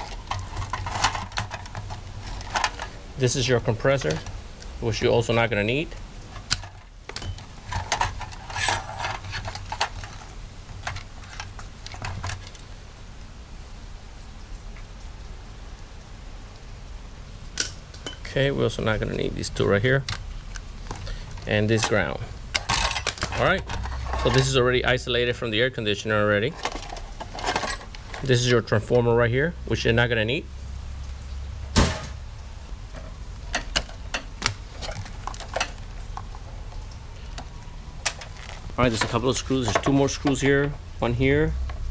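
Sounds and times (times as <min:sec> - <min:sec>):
wiring connectors clicking and rattling: 0:00.0 - 0:12.7, 0:19.1 - 0:25.3, 0:26.4 - 0:28.5, 0:33.0 - 0:41.8.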